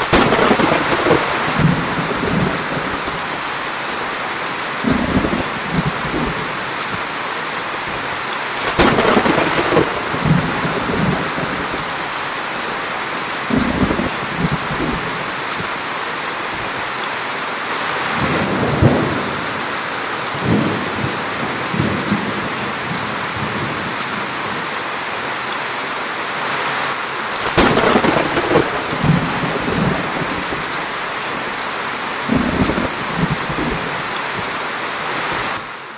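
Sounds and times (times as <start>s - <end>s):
thunder rumbling: 0.0s - 7.1s, 7.8s - 15.7s, 18.2s - 24.6s, 27.3s - 34.6s
heavy rain on plants and ground: 0.0s - 35.9s.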